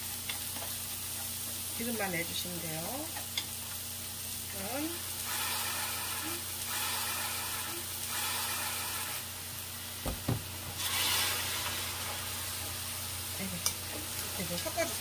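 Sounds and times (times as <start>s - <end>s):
sauce hissing in hot pan: 0.0s - 15.0s
vegetables sizzling in pan: 0.0s - 15.0s
short low knocks: 10.0s - 10.6s.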